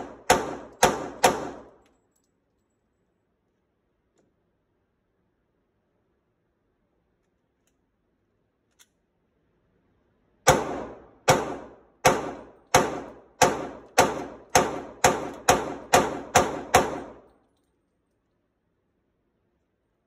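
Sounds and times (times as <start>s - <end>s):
pistol shots echoing indoors: 0.0s - 2.0s, 10.4s - 17.5s.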